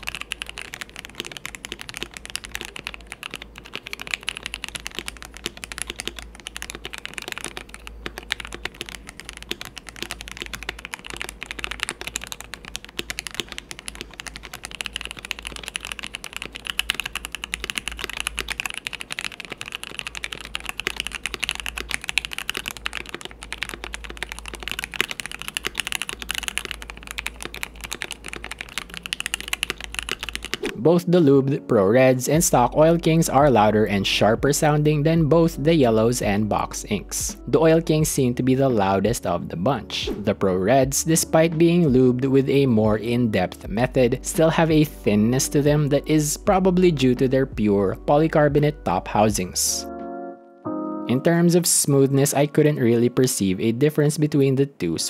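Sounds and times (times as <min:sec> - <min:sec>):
fast typing on mechanical keyboard: 0:00.0 - 0:30.8.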